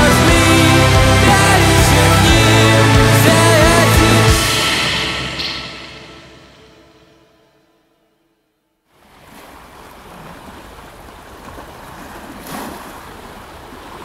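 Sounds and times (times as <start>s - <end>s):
song: 0.0s - 7.9s.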